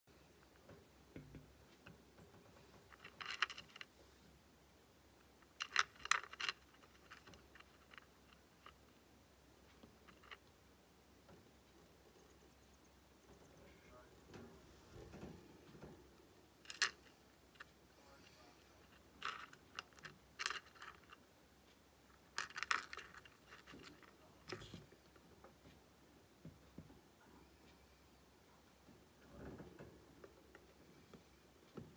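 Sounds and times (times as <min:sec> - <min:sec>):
hamster crunching pellets: 0:02.6 - 0:04.0, 0:05.3 - 0:10.5, 0:16.5 - 0:21.3, 0:22.1 - 0:25.0
dry food rattling in plastic bowl: 0:05.6 - 0:08.8, 0:19.0 - 0:21.2, 0:22.3 - 0:24.1.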